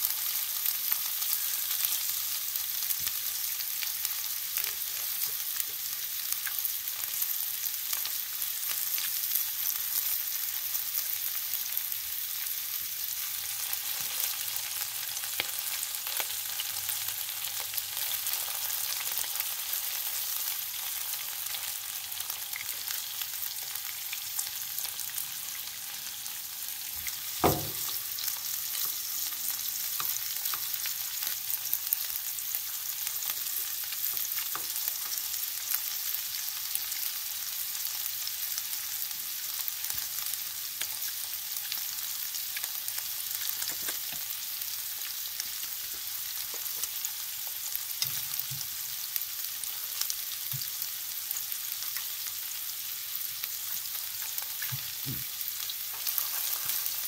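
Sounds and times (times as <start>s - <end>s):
food sizzling in oil: 0.0s - 57.0s
chopsticks tapping pan: 27.4s - 28.0s
sharp knock: 27.4s - 28.0s.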